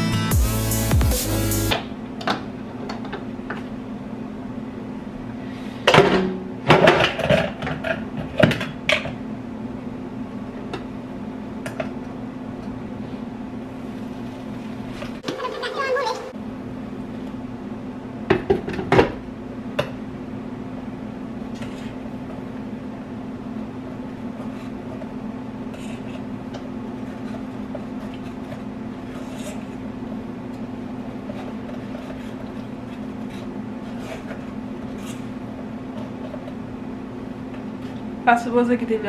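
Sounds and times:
low appliance hum: 0.0 - 39.0.

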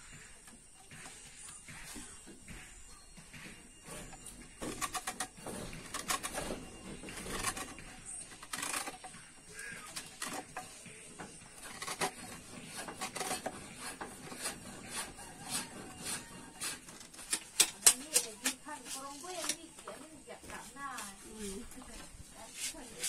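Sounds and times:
knife carving bamboo: 3.8 - 20.0, 22.4 - 23.0.

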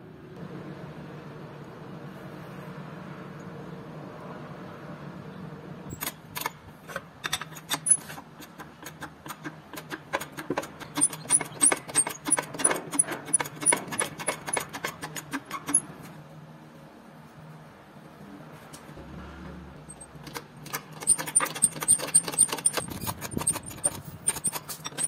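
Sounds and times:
sharp metallic clicks of car jack: 5.9 - 16.0, 19.9 - 25.0.

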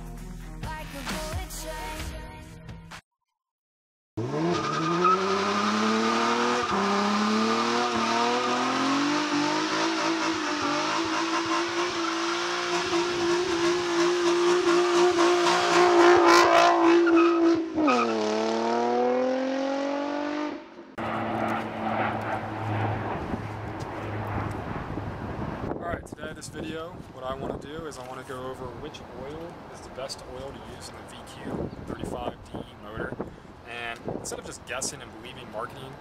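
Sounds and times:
car engine revving hard: 4.2 - 23.5
faint wind noise: 22.6 - 36.0.

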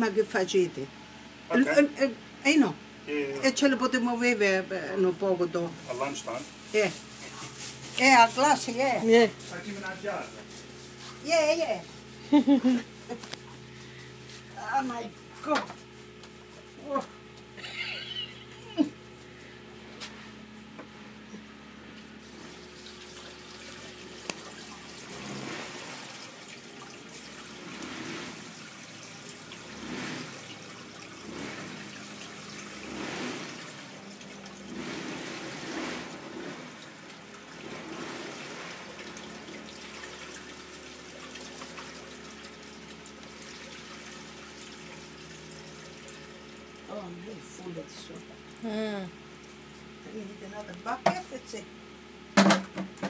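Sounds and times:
liquid gurgling through funnel: 22.2 - 47.6.

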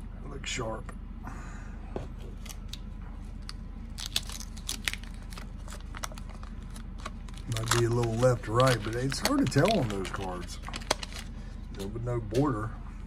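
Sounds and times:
cards rustling and clicking: 3.4 - 12.4.

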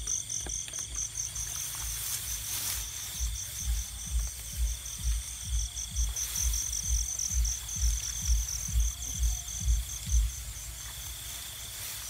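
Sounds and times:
crickets chirping: 0.0 - 12.0
high insect drone: 0.0 - 12.0
low thumps: 3.6 - 10.8.

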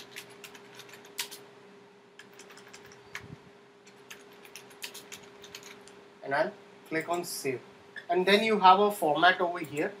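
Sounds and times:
keyboard typing: 0.0 - 1.4, 2.2 - 6.0
faint steady hum: 0.0 - 10.0.

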